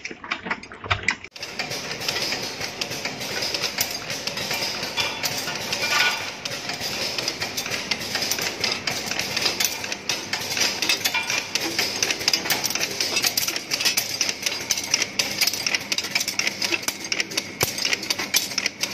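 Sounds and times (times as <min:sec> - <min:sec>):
machine clattering sharp clicks: 0:00.4 - 0:18.9.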